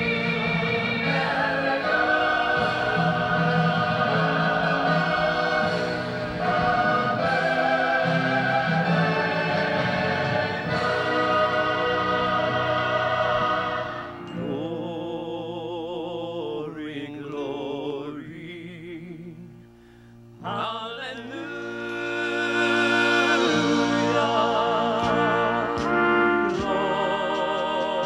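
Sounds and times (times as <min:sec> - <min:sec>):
orchestral accompaniment: 0:00.0 - 0:14.8, 0:20.4 - 0:28.0
singing voice with heavy vibrato: 0:00.0 - 0:19.7, 0:20.4 - 0:28.0.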